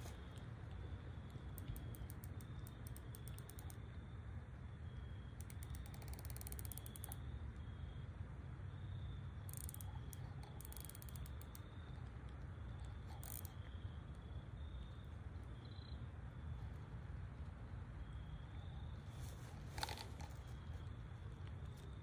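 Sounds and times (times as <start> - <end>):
light clicks: 0.0 - 3.9, 5.4 - 7.2, 9.5 - 13.7
low steady rumble: 0.0 - 6.0, 7.1 - 22.0
insects trilling in pulses: 4.8 - 7.9, 8.8 - 11.9, 12.9 - 16.5.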